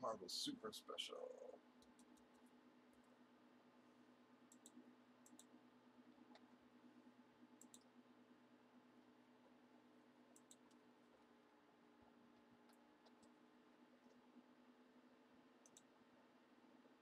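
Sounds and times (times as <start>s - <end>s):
low electrical hum: 0.0s - 17.0s
computer mouse clicks: 1.8s - 3.2s, 4.5s - 6.6s, 7.6s - 7.9s, 10.3s - 11.2s, 12.3s - 14.2s, 15.6s - 16.0s.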